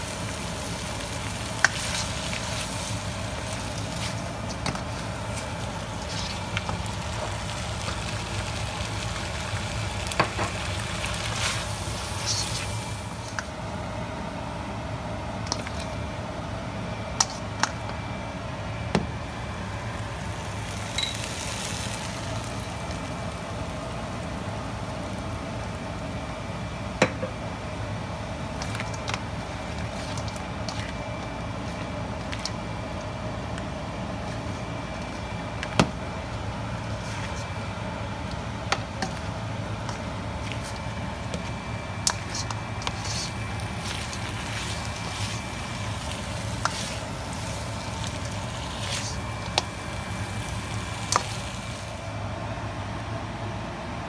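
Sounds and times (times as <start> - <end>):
seafood sizzling in a wok: 0.0 - 14.0, 19.2 - 35.4, 38.5 - 52.2.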